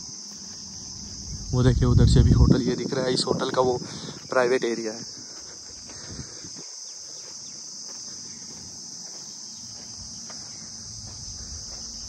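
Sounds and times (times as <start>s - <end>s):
insect chirring: 0.0s - 12.0s.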